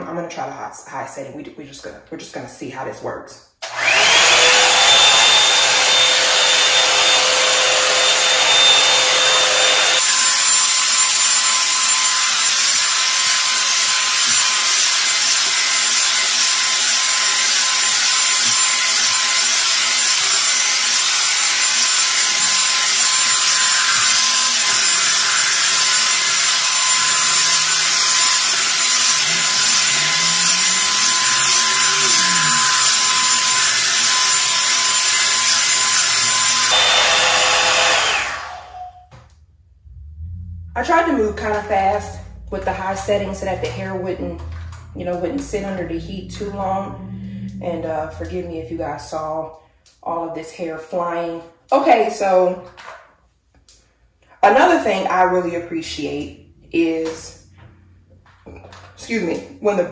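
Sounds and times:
hair dryer blowing air: 0:03.6 - 0:39.2.

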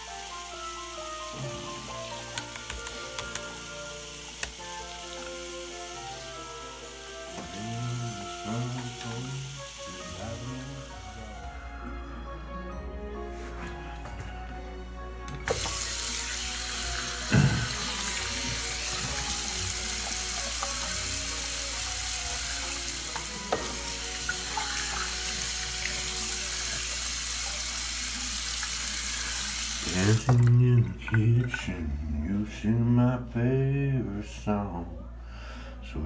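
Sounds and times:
sink tap turning on: 0:00.0 - 0:07.6, 0:15.4 - 0:31.7
water running into sink: 0:00.0 - 0:11.4, 0:15.4 - 0:31.8.

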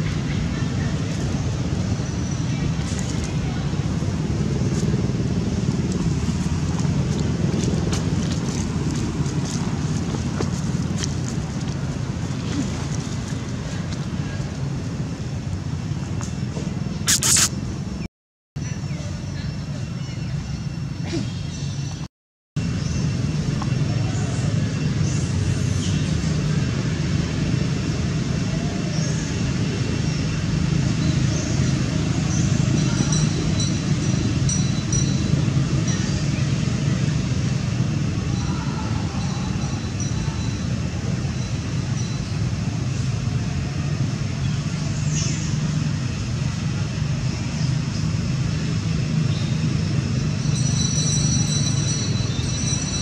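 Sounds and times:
road traffic rumble: 0:00.0 - 0:53.0.

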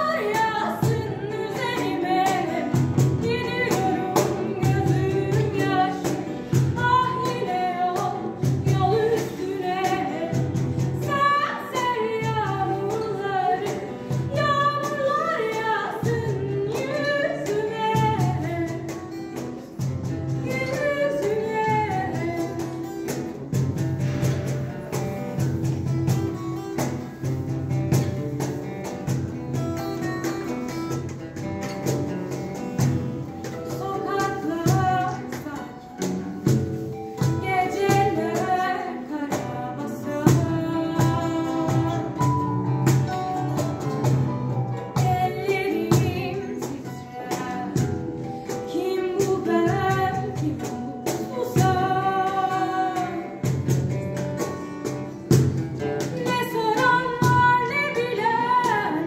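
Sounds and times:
instrumental accompaniment: 0:00.0 - 0:59.0
person singing: 0:37.2 - 0:42.8, 0:44.7 - 0:53.6.

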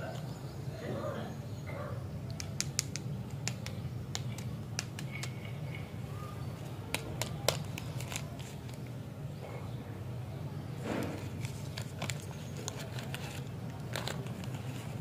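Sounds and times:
wrapper crinkling: 0:06.9 - 0:08.8, 0:11.2 - 0:15.0.

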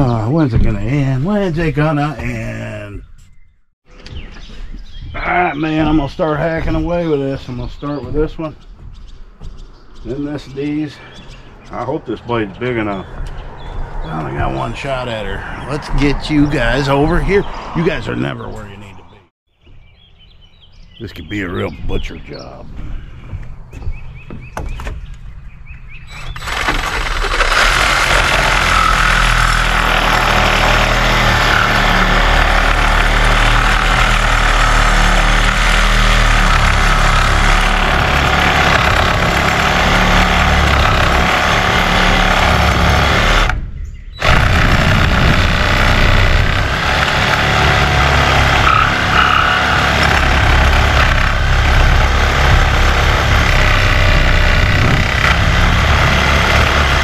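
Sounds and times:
reciprocating saw cutting wood: 0:26.1 - 0:43.6, 0:44.2 - 0:57.0.

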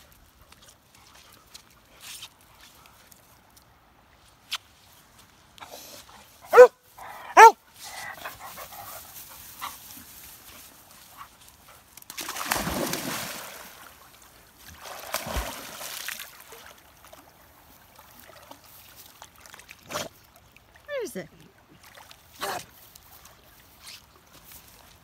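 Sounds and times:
dog barking: 0:06.5 - 0:07.6
water splashing: 0:12.1 - 0:23.4.

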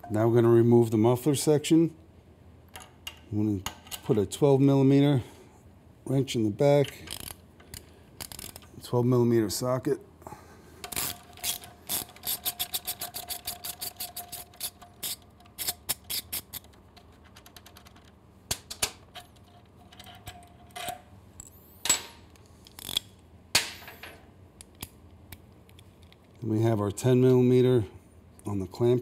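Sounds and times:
ratchet wrench clicking: 0:07.1 - 0:08.7, 0:10.9 - 0:16.7.

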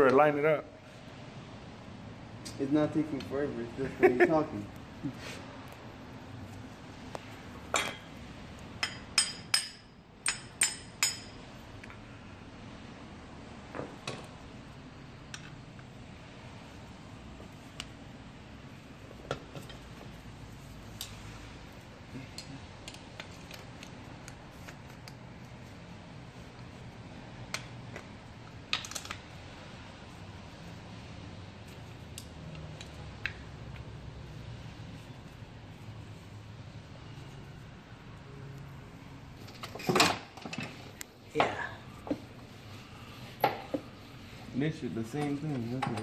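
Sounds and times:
hammer tapping on metal: 0:08.8 - 0:11.4
metal parts clicking and clinking: 0:28.7 - 0:29.2.

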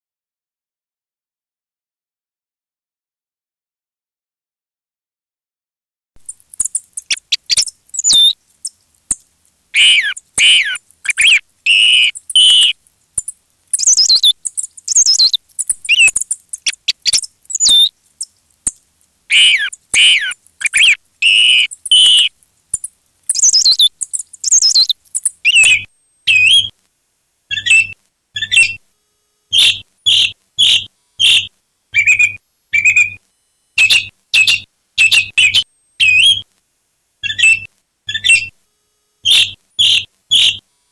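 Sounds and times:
bird calls with high whistles: 0:06.3 - 0:08.4, 0:09.8 - 0:12.8, 0:13.7 - 0:18.3, 0:19.3 - 0:22.3, 0:23.3 - 0:26.7, 0:27.5 - 0:28.8, 0:29.5 - 0:33.2, 0:33.8 - 0:36.5, 0:37.2 - 0:38.6, 0:39.2 - 0:40.6.

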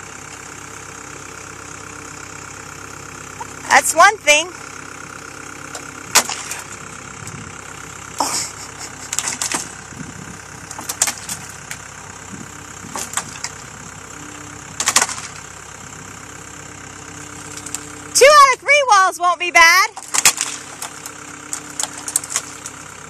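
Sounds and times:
diesel engine idling: 0:00.0 - 0:23.0
sharp knocks and clatters: 0:09.1 - 0:09.8.

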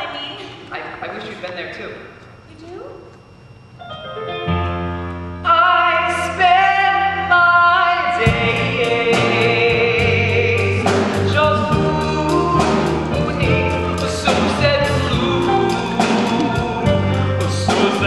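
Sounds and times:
man singing on long held notes: 0:05.4 - 0:18.0
band with steady drum beat: 0:08.3 - 0:18.0.

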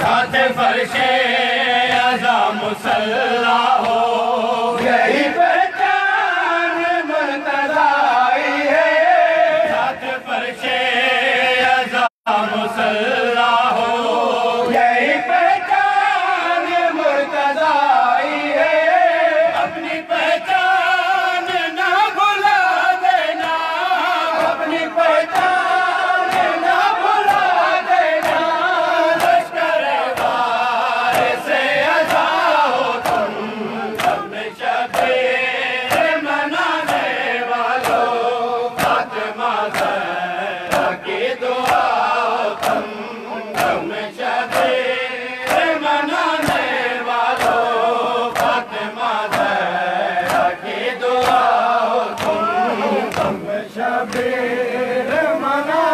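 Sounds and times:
men chanting in unison: 0:00.0 - 0:55.9
hand slaps keeping time: 0:26.2 - 0:26.6, 0:29.2 - 0:29.5, 0:31.1 - 0:36.2, 0:36.8 - 0:37.2, 0:37.8 - 0:38.2, 0:38.8 - 0:40.1, 0:40.7 - 0:42.9, 0:43.5 - 0:50.6, 0:51.2 - 0:53.4, 0:54.1 - 0:54.4.

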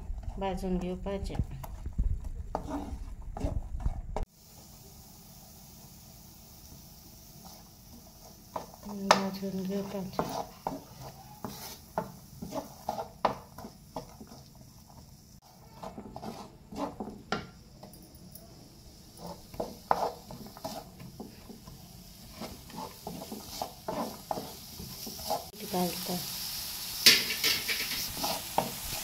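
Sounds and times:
wooden spatula scraping pan: 0:01.8 - 0:04.3, 0:07.4 - 0:17.6, 0:19.1 - 0:25.9, 0:27.1 - 0:29.0
onions sizzling in oil: 0:04.2 - 0:29.0.

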